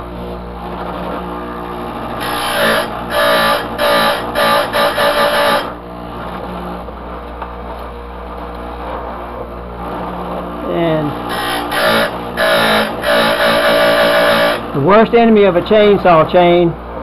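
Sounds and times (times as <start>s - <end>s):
grinder motor humming: 0.0s - 7.1s, 8.5s - 16.0s
grinding wheel on metal: 2.2s - 5.8s, 11.1s - 14.9s.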